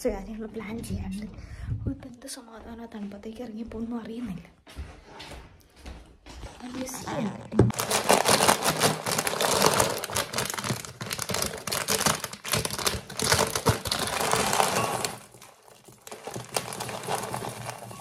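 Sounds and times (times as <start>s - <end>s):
crinkly plastic bag crackling: 6.8s - 18.0s.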